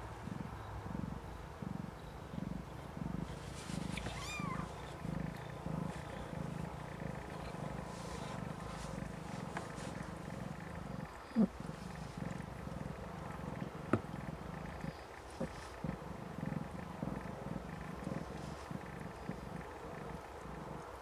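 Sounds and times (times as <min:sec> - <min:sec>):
cat purring: 0:00.0 - 0:21.0
kitten mewing: 0:03.9 - 0:04.8.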